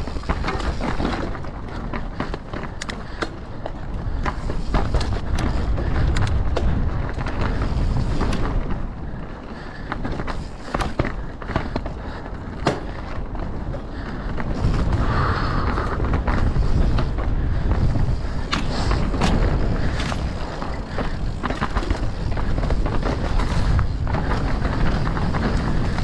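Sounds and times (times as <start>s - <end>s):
bike clattering and knocking: 0.0s - 26.0s
tyres rolling over dirt and rock: 0.0s - 26.0s.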